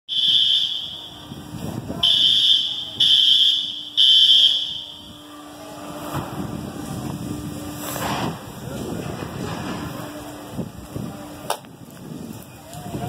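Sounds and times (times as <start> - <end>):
building alarm beeping: 0.1 - 5.9.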